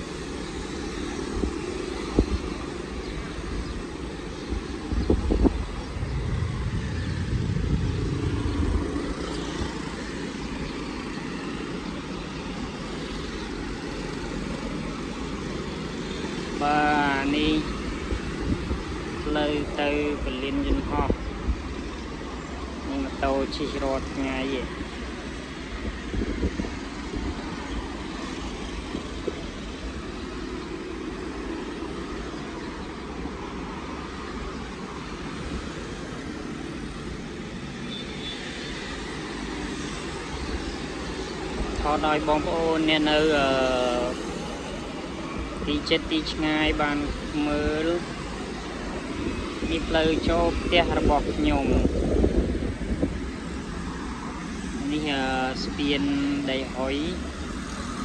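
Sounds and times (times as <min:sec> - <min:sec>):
low traffic rumble: 0:00.0 - 0:58.0
traffic passing: 0:00.0 - 0:58.0
scooter engine passing close: 0:05.3 - 0:20.7.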